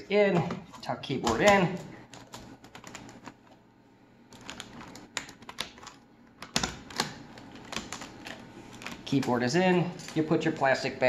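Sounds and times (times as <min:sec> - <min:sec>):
laptop keyboard keys clicking: 0:01.3 - 0:03.4, 0:04.3 - 0:09.0.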